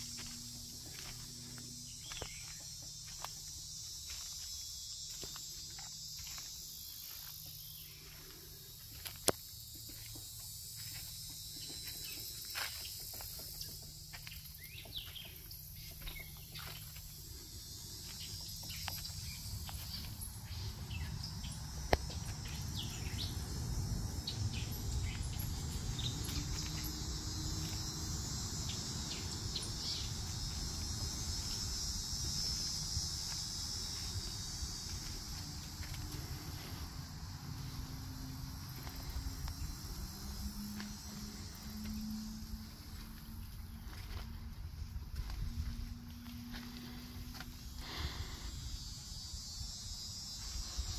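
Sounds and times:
footsteps on trail: 0.0 - 48.2
insect chorus: 0.0 - 50.9.

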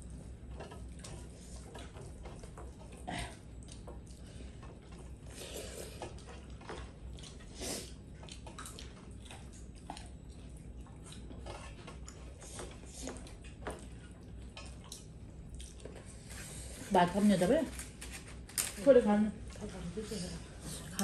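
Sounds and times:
chewing and lip smacks: 0.6 - 16.1.

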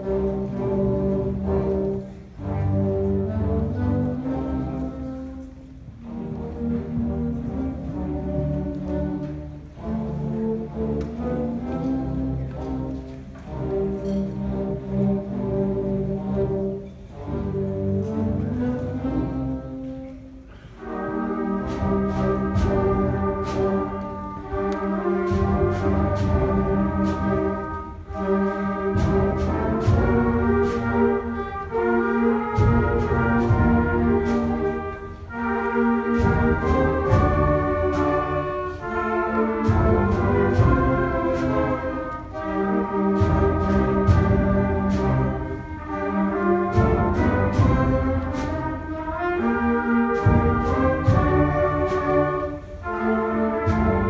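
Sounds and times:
percussion strikes: 21.6 - 31.4, 32.4 - 54.0.

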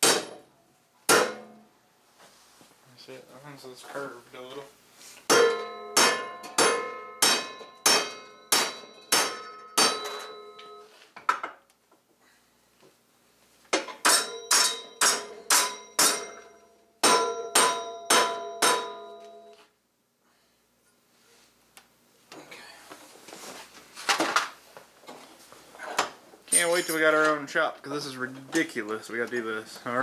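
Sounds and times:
hammer striking steel: 0.0 - 0.4, 1.1 - 1.6, 5.3 - 10.8, 13.8 - 19.5.

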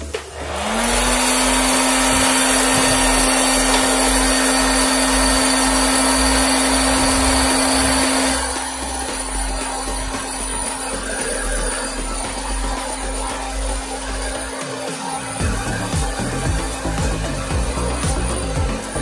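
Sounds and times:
popcorn maker fan hum: 0.0 - 19.0.

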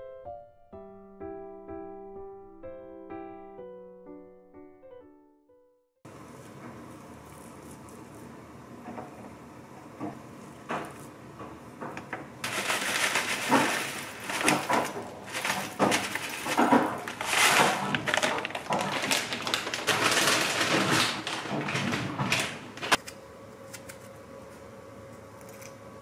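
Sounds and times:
granola pouring into cup: 12.4 - 22.9
plastic bag crinkling: 12.4 - 23.0.

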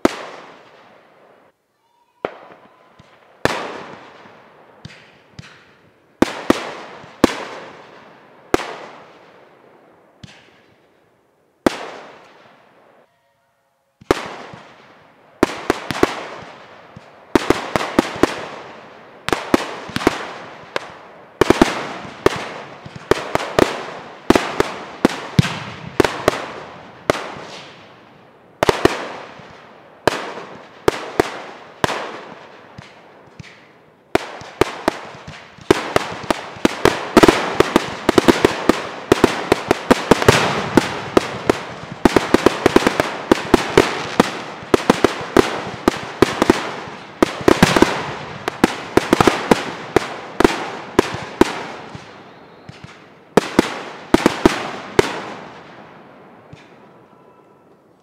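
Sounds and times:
fireworks bangs: 2.1 - 9.6, 10.2 - 10.9, 14.0 - 57.8.

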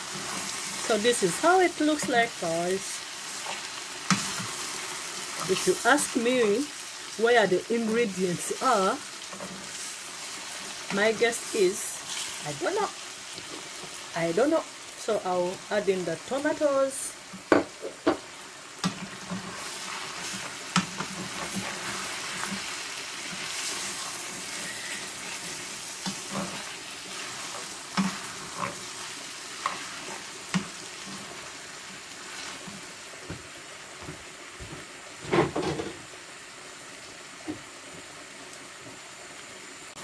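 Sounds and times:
wooden spoon scraping a pan: 0.0 - 6.7, 7.8 - 12.7, 18.8 - 31.6
food sizzling in a saucepan: 0.0 - 40.0.

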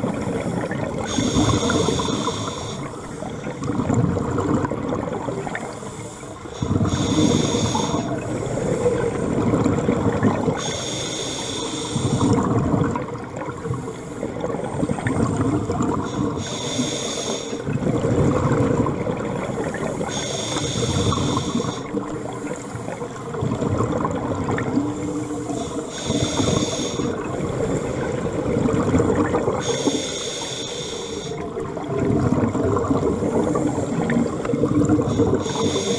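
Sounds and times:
regulator hissing inhale: 0.3 - 3.5, 5.6 - 9.2, 10.6 - 12.4, 16.0 - 17.7, 20.0 - 23.0, 25.0 - 27.2, 29.6 - 31.4, 35.0 - 35.9.

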